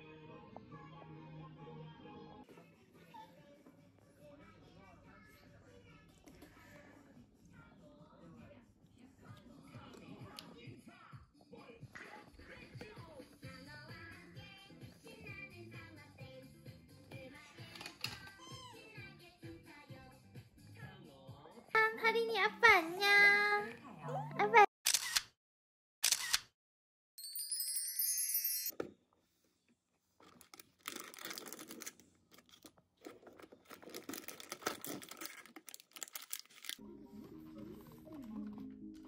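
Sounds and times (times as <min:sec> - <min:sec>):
background music: 0:00.0 - 0:02.9, 0:13.0 - 0:24.7, 0:36.8 - 0:39.0
cardboard crinkling and tearing: 0:30.2 - 0:36.8.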